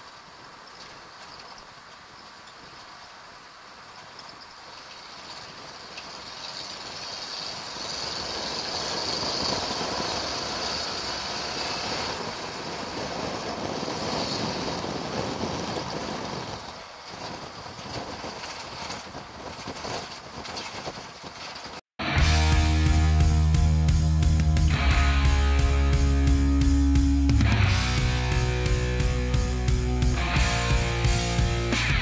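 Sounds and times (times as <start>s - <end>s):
loud rock music with guitar: 22.0s - 32.0s
truck engine running: 22.0s - 32.0s.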